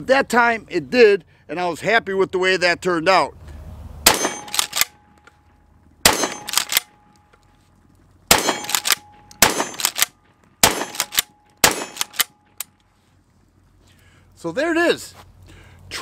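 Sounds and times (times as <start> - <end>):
shotgun shots: 4.0 - 5.0, 6.0 - 6.9, 8.3 - 12.6.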